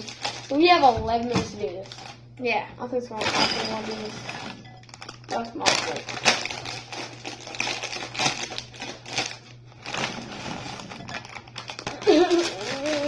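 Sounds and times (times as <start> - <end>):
snack bag crinkling: 0.0 - 0.7, 1.8 - 2.2, 3.8 - 13.0.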